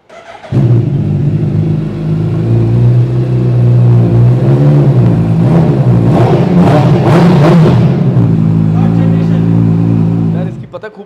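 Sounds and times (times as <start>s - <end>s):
motorcycle engine idling: 0.1s - 4.2s.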